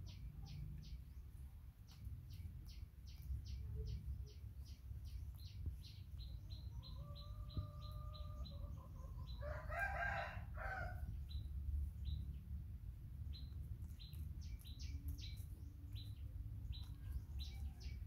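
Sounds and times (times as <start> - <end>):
bird chirping: 0.0 - 18.0
rooster crowing: 9.4 - 11.0
steady low rumble: 10.4 - 18.0.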